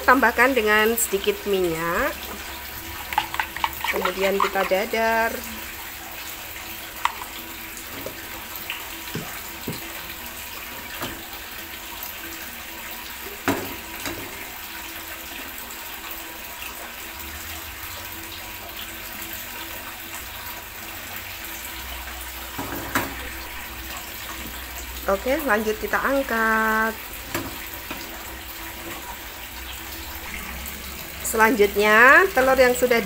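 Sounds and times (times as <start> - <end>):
egg sizzling in hot oil: 2.2 - 11.7.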